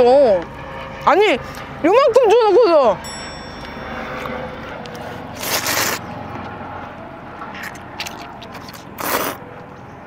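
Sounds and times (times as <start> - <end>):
noodles being slurped: 5.4 - 6.0, 7.6 - 9.4.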